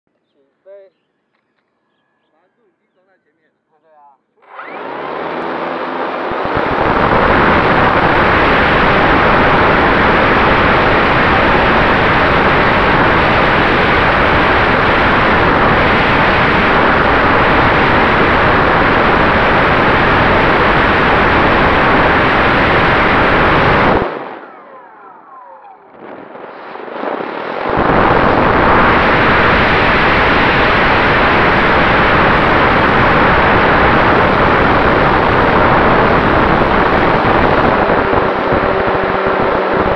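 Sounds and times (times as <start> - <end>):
model plane motor and propeller: 4.4 - 8.8.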